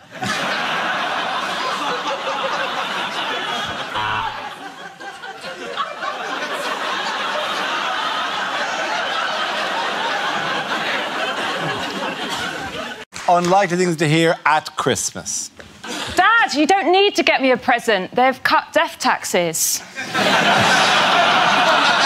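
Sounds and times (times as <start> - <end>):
studio audience laughing: 0.0 - 13.1, 19.9 - 22.0.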